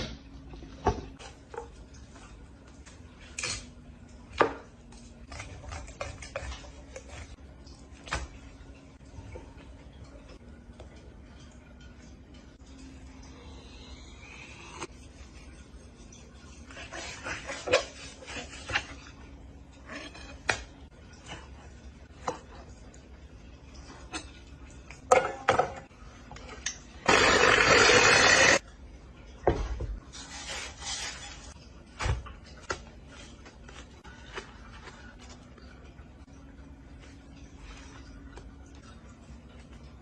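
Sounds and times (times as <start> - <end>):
ice shaver shaving ice: 27.0 - 28.6.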